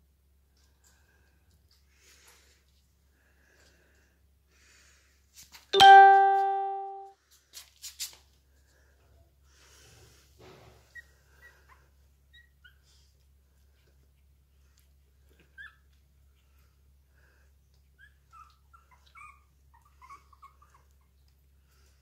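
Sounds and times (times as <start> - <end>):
loud chime-like ding: 5.8 - 7.0
puppies squeaking: 10.9 - 13.0, 15.3 - 16.0, 17.9 - 21.2.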